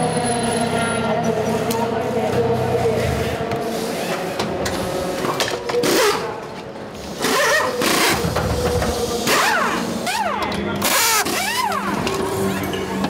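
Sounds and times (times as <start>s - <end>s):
pneumatic wheel guns rattling: 3.8s - 13.0s.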